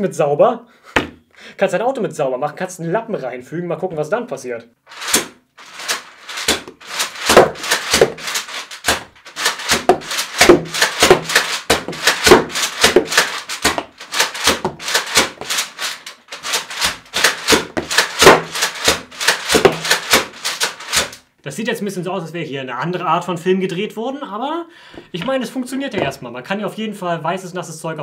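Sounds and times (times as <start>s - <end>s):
toy blaster mechanical strokes: 4.9s - 21.2s.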